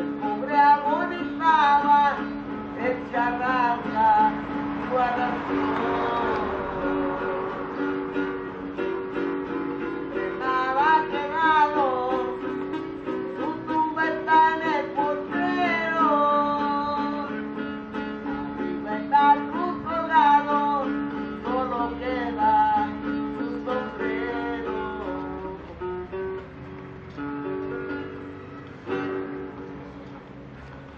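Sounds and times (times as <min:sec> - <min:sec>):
person singing: 0:00.0 - 0:07.8, 0:10.0 - 0:17.6, 0:18.3 - 0:25.8
acoustic guitar strumming: 0:00.0 - 0:30.9.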